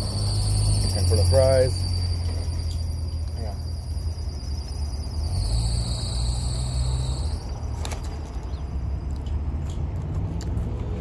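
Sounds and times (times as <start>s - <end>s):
insects chirring: 0.0s - 9.2s.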